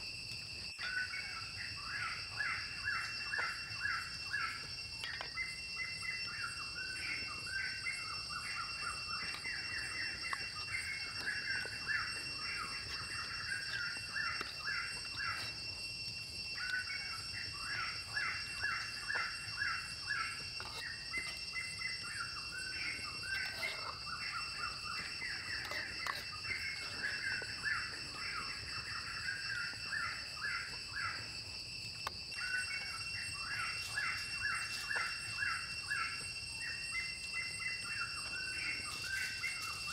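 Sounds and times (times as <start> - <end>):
steady high-pitched hum: 0.0 - 39.9.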